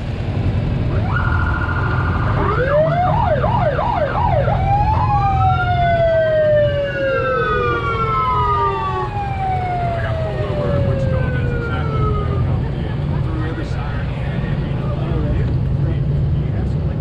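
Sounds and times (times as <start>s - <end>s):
low engine rumble: 0.0s - 17.0s
emergency vehicle siren: 0.8s - 13.8s.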